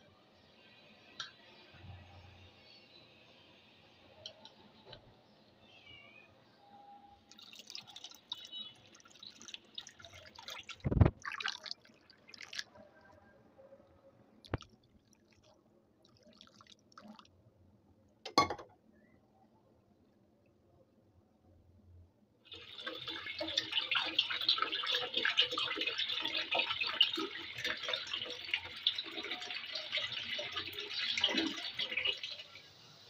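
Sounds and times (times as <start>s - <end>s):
water pouring into plastic bowl: 7.3s - 12.8s, 14.4s - 17.3s, 22.5s - 32.6s.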